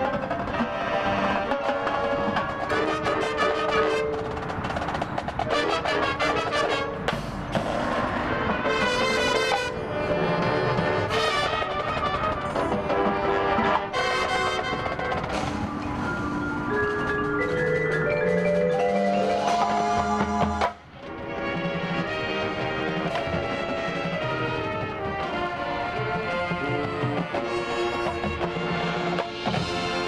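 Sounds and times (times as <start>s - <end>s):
marching band playing: 0.0s - 30.0s
marimba runs: 14.7s - 20.7s.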